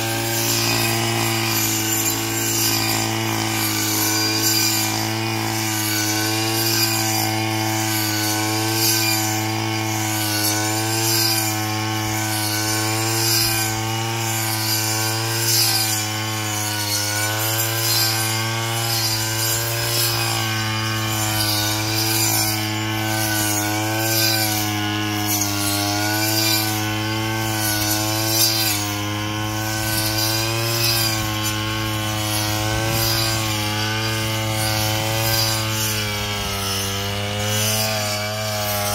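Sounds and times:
brush cutter engine running: 0:00.0 - 0:38.9
blade hissing through grass: 0:18.9 - 0:38.9.

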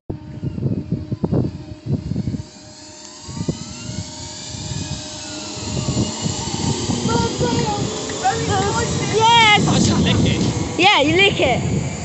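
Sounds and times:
electric train running noise: 0:00.1 - 0:12.0
faint whines: 0:00.1 - 0:12.0
wind buffeting on microphone: 0:00.1 - 0:12.0.

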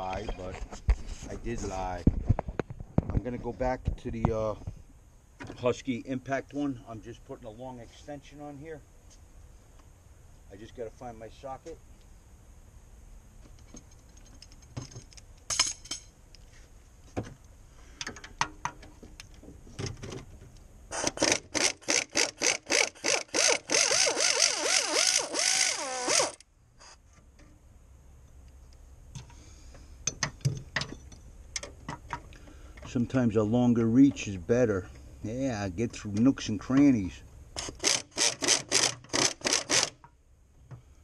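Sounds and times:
air ratchet hammering bolt: 0:20.9 - 0:26.4, 0:37.6 - 0:40.0
sharp tool clicks: 0:20.9 - 0:26.4, 0:37.6 - 0:40.1.

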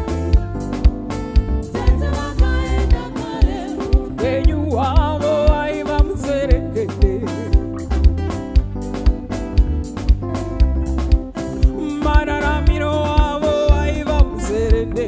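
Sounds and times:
drum kicks: 0:00.0 - 0:15.0
live band music: 0:00.0 - 0:15.0
woman singing: 0:01.7 - 0:07.6.

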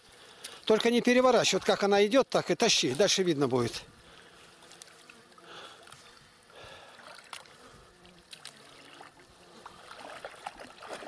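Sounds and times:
fly buzzing: 0:03.2 - 0:11.0
water sloshing: 0:06.8 - 0:11.0
net swishing through water: 0:08.3 - 0:11.0.

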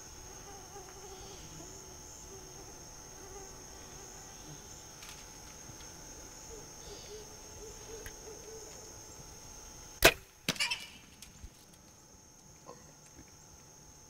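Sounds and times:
high insect buzz: 0:00.0 - 0:14.0
arrow striking animal: 0:10.0 - 0:11.0.

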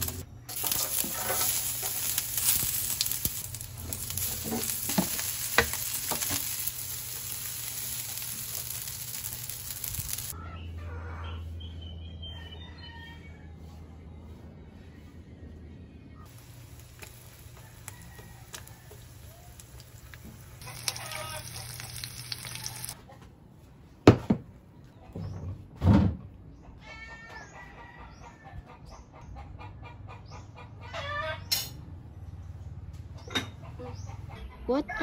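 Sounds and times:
rooster crowing: 0:12.2 - 0:13.8, 0:17.5 - 0:19.6, 0:20.6 - 0:23.0
hens clucking: 0:16.2 - 0:23.3, 0:26.6 - 0:31.6, 0:33.0 - 0:35.0.

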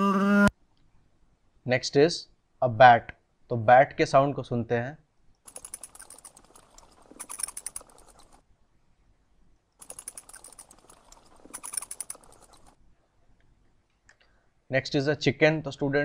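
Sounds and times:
bat calls chirping and clicking: 0:05.5 - 0:08.4, 0:09.8 - 0:12.8.

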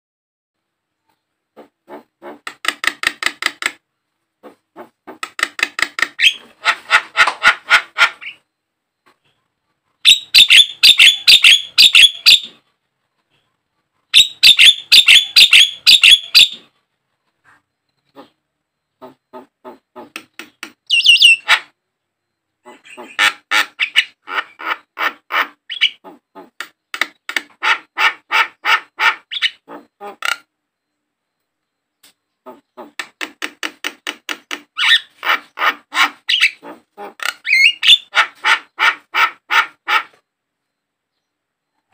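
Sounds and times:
bird harsh chattering notes: 0:10.0 - 0:12.6, 0:14.2 - 0:16.7, 0:19.0 - 0:21.8, 0:32.5 - 0:40.2
bird whistles: 0:20.9 - 0:21.5.

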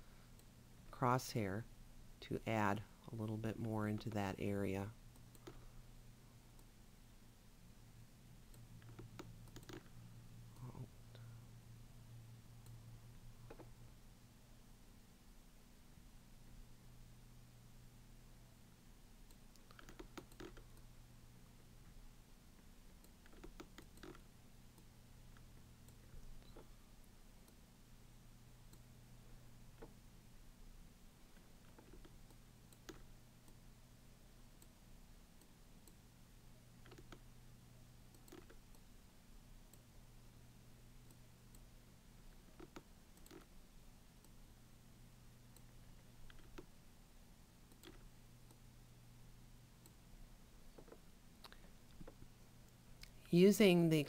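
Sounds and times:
steady low hum: 0:00.0 - 0:53.9
mouse and keyboard clicks: 0:08.8 - 0:09.9, 0:13.5 - 0:13.7, 0:19.3 - 0:20.8, 0:23.0 - 0:24.3, 0:31.7 - 0:33.1, 0:36.8 - 0:37.3, 0:38.1 - 0:38.8, 0:42.3 - 0:43.5, 0:45.6 - 0:46.8, 0:47.7 - 0:48.1.

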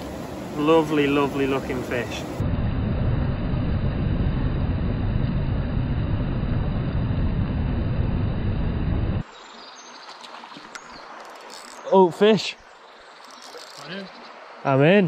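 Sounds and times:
river water rushing: 0:00.0 - 0:02.4, 0:09.2 - 0:15.0
faint insect-like ticks: 0:09.4 - 0:11.9, 0:12.6 - 0:14.4.

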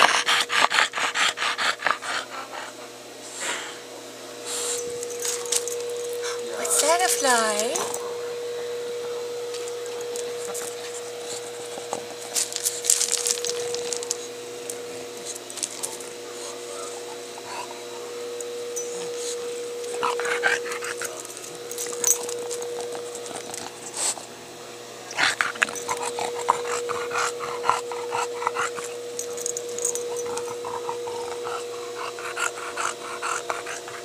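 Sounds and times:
dog sniffing and snuffling: 0:04.4 - 0:08.1, 0:09.5 - 0:18.2, 0:18.8 - 0:24.3, 0:25.1 - 0:34.0.

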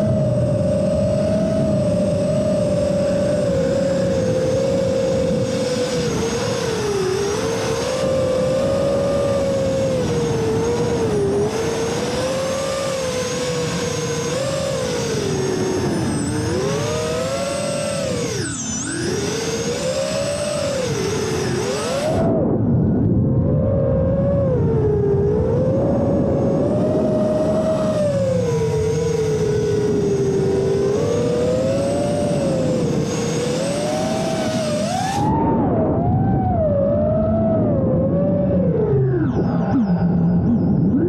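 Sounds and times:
drone motors whining: 0:00.0 - 0:41.0.

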